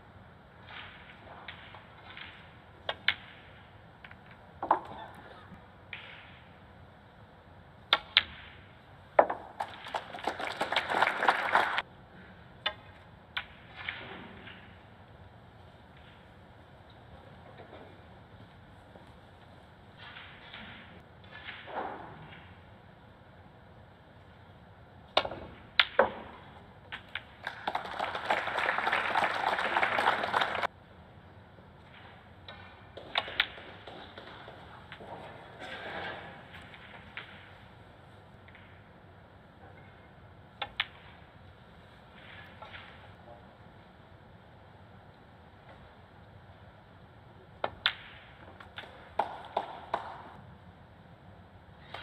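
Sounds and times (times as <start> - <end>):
snooker balls clicking: 9.2 - 11.8
audience applause: 9.6 - 11.8, 27.4 - 30.7.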